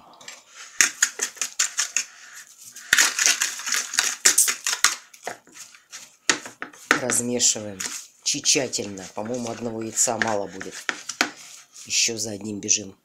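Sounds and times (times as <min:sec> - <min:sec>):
fork scraping against bowl: 0:07.8 - 0:12.0.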